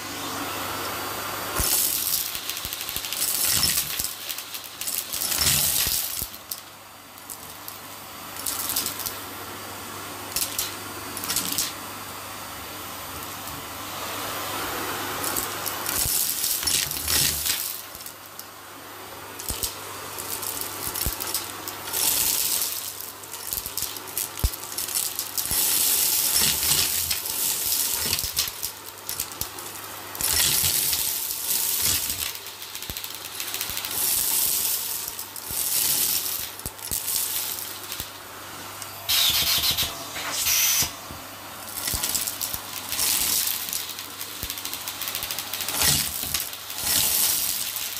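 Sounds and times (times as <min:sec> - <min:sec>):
vacuum motor running: 0:00.0 - 0:06.4
debris rattling up vacuum hose: 0:01.6 - 0:07.8, 0:08.4 - 0:09.2, 0:10.3 - 0:11.8, 0:15.2 - 0:18.6, 0:19.4 - 0:47.9.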